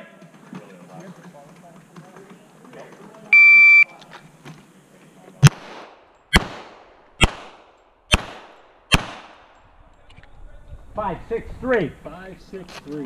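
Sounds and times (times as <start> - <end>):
pistol shots with echo: 5.4 - 9.6.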